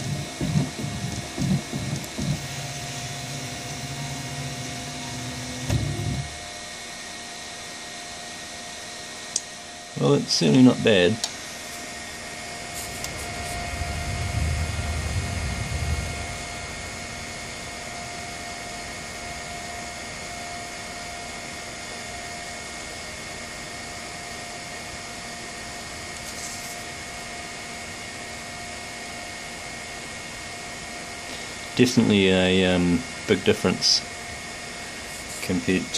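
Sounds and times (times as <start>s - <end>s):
faint whine: 0.0s - 35.9s
printer fans whirring: 0.0s - 35.9s
low rumble: 13.1s - 18.6s.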